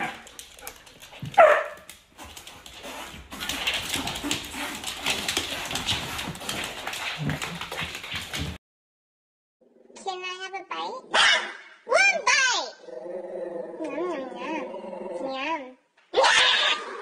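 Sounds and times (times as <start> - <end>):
rustling and scuffling: 0.0 - 8.6
dog barking: 1.3 - 1.9, 11.1 - 11.8.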